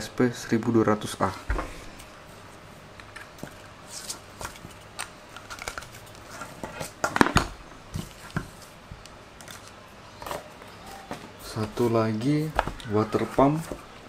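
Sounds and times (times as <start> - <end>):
cardboard packaging rustling: 3.1 - 8.8.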